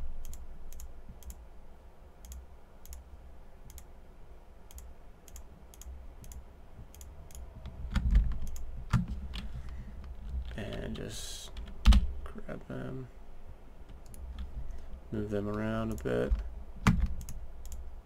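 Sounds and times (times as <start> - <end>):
steady low hum: 0.0 - 18.0
computer mouse clicking: 0.2 - 1.4, 2.2 - 3.0, 3.6 - 3.9, 4.7 - 9.5, 13.9 - 14.8, 15.5 - 17.8.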